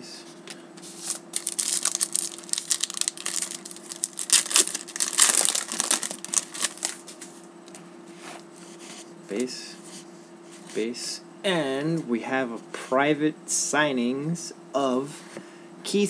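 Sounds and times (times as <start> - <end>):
foil wrapper crinkling: 1.0 - 7.4.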